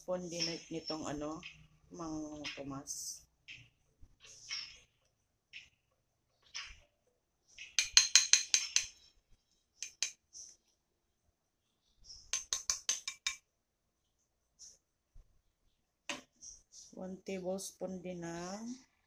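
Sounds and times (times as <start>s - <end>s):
plastic spoon clinking on ceramic plate: 7.8s - 9.0s, 9.8s - 10.2s, 12.3s - 13.4s.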